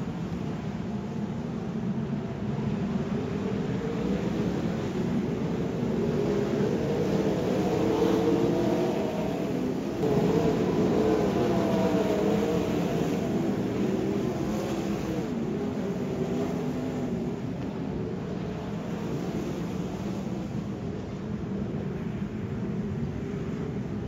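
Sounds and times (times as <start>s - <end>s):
race car engines: 4.0s - 20.6s.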